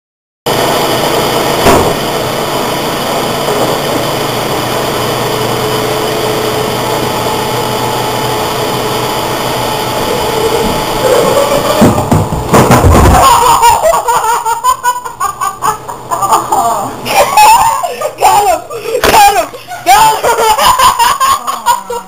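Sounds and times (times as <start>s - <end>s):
steady hiss and hum: 0.5s - 22.0s
sharp knock: 1.6s - 2.0s.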